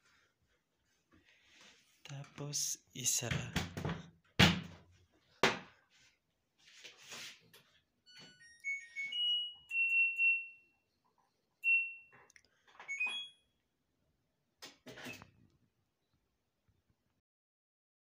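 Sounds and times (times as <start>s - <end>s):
washing machine door knocks: 3.4s - 4.8s.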